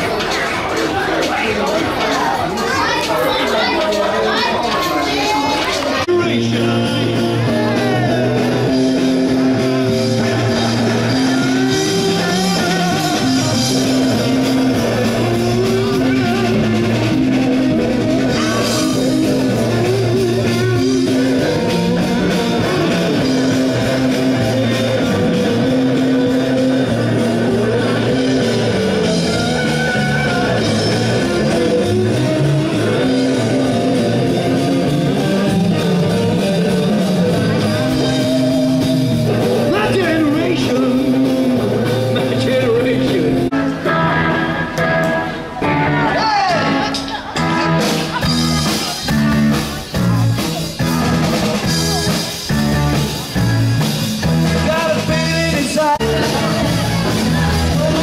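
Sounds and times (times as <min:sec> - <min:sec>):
drum kit: 0:00.0 - 0:58.0
electric guitar: 0:03.0 - 0:58.0
person singing: 0:05.3 - 0:47.7, 0:54.6 - 0:58.0
bass line: 0:05.9 - 0:58.0.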